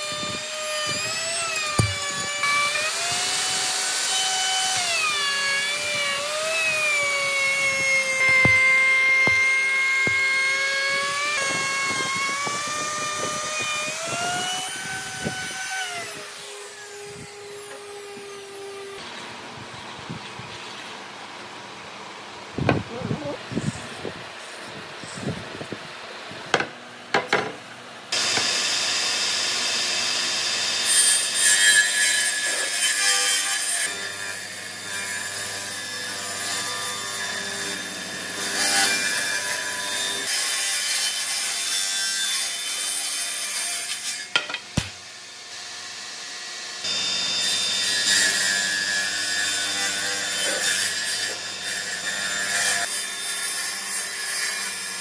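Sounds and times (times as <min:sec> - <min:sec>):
table saw cutting wood: 0:00.0 - 0:19.0, 0:28.1 - 0:55.0
boards knocking: 0:08.2 - 0:10.3.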